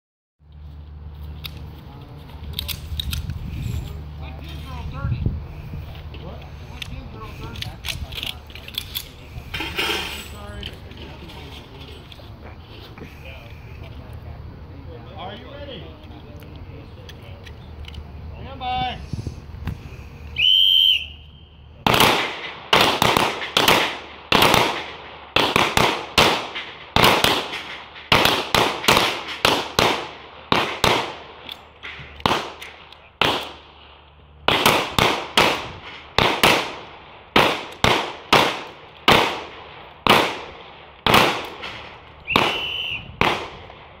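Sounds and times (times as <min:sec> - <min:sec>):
pistol shots with echo: 0:21.8 - 0:33.9, 0:34.5 - 0:44.0.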